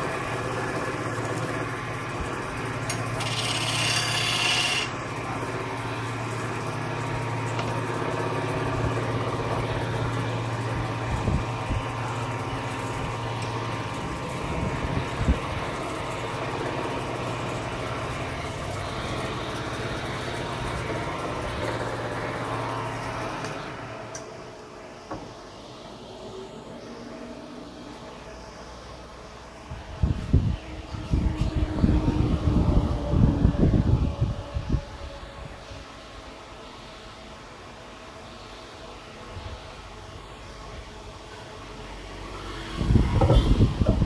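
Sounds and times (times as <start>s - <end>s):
wood lathe humming: 0.0s - 24.2s
chisel scraping spinning wood: 0.4s - 5.2s.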